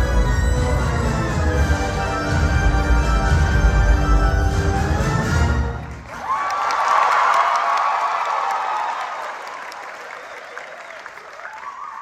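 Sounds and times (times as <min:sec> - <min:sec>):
audience applause: 0:05.6 - 0:12.0.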